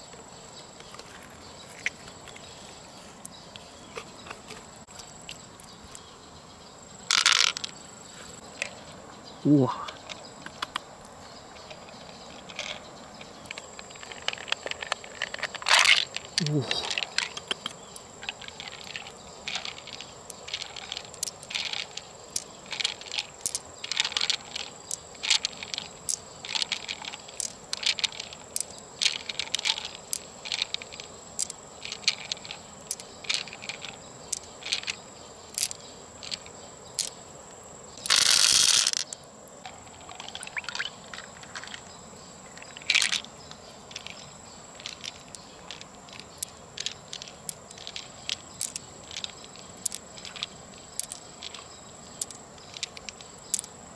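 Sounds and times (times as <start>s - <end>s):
pearls clicking together: 7.1s - 7.8s, 11.6s - 37.2s, 38.0s - 41.9s, 42.5s - 53.8s
small wet clicks: 9.8s - 37.2s, 38.0s - 53.8s.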